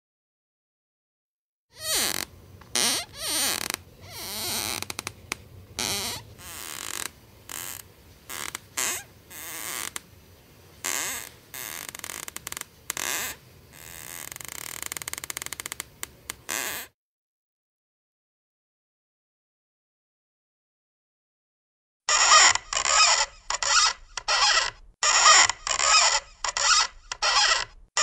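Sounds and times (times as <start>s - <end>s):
floorboards creaking: 1.8s - 10.0s, 10.8s - 16.9s, 22.1s - 28.0s.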